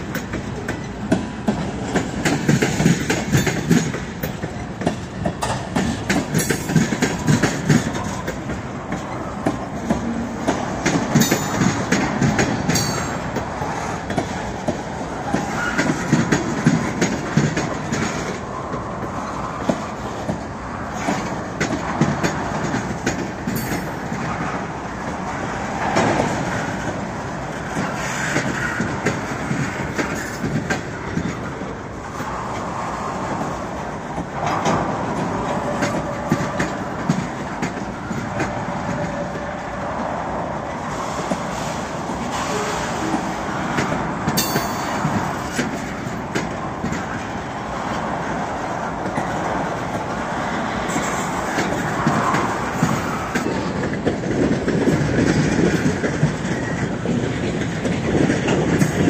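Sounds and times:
wheels clattering over rail joints: 0:00.0 - 0:31.6, 0:42.2 - 0:48.2
freight train rumbling past: 0:00.0 - 0:59.0.

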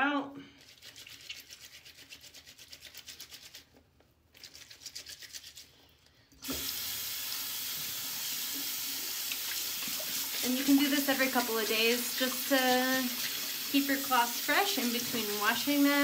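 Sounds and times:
water running into sink: 0:06.4 - 0:16.0.

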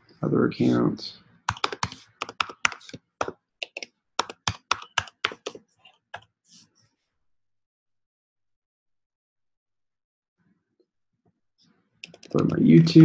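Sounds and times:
typing on computer keyboard: 0:01.5 - 0:05.6, 0:12.0 - 0:12.6.

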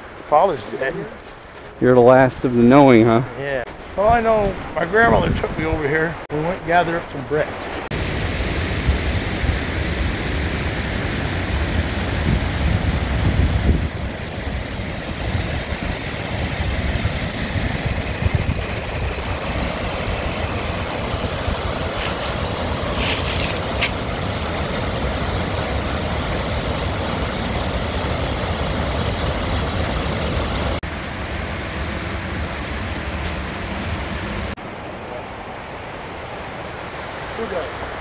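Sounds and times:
river rapids rushing over rocks: 0:22.0 - 0:30.8.

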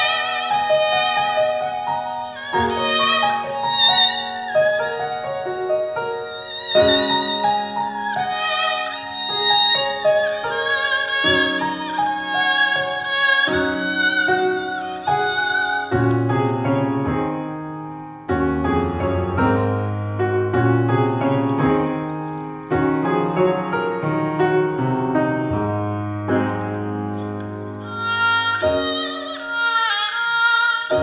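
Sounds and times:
bowed fiddle with vibrato: 0:00.0 - 0:16.9, 0:27.2 - 0:31.0
piano chords and bass notes: 0:00.0 - 0:29.6.

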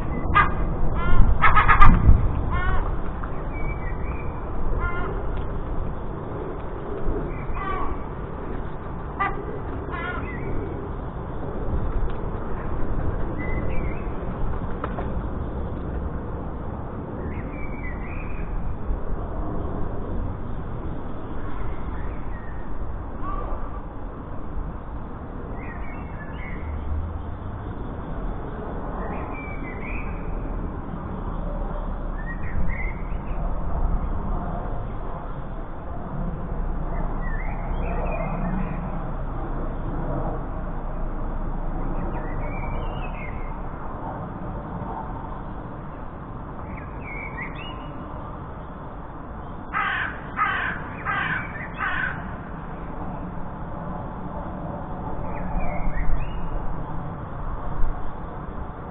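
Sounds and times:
jackdaws calling: 0:00.0 - 0:05.2, 0:09.2 - 0:10.8, 0:49.7 - 0:52.4.

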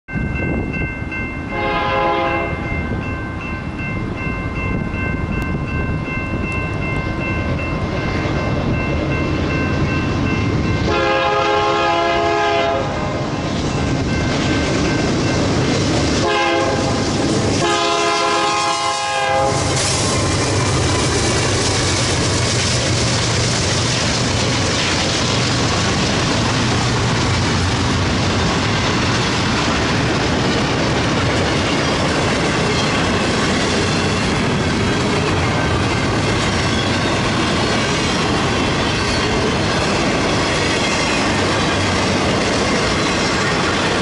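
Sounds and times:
crossing bell ringing: 0:00.1 - 0:22.9, 0:28.3 - 0:44.0
locomotive horn blasts: 0:01.5 - 0:02.6, 0:10.9 - 0:13.1, 0:16.2 - 0:17.0, 0:17.6 - 0:19.8.

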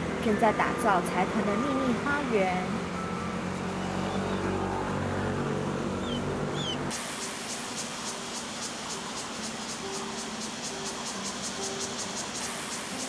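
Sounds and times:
engine hum: 0:00.0 - 0:13.0
short rising chirps: 0:06.0 - 0:13.0
insect buzzing: 0:06.9 - 0:13.0.

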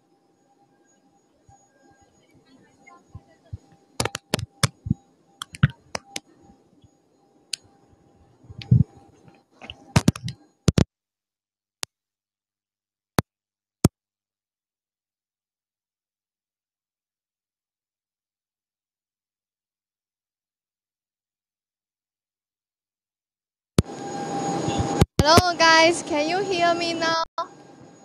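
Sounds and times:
thin steady tone: 0:00.0 - 0:10.6
faint hum: 0:00.0 - 0:10.7, 0:23.8 - 0:28.0
sharp clicks and knocks: 0:04.0 - 0:06.2, 0:09.6 - 0:10.9.

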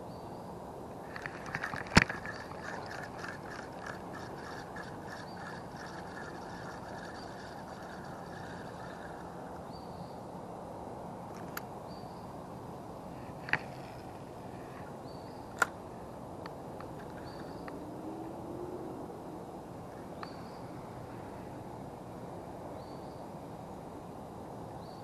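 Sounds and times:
fishing reel click: 0:01.1 - 0:09.3
fishing reel ticking while cranked: 0:01.1 - 0:09.4.

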